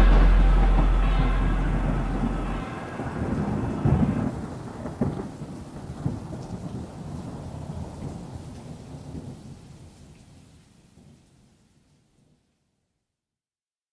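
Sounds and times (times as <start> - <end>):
music track: 0.0 - 4.4
rolling thunder: 0.0 - 7.7
rain: 0.0 - 12.8.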